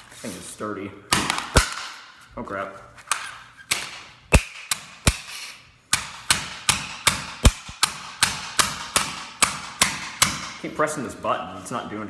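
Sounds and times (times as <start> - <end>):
rubber mallet striking plastic: 5.9 - 10.6.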